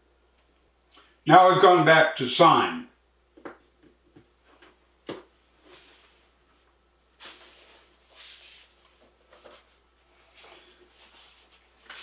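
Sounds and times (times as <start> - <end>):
soft rustling: 4.4 - 12.0.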